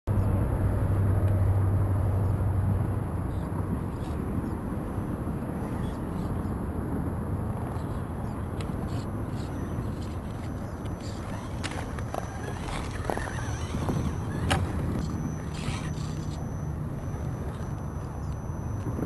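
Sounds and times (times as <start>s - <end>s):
low outdoor rumble: 0.1s - 19.0s
low hum: 7.4s - 19.0s.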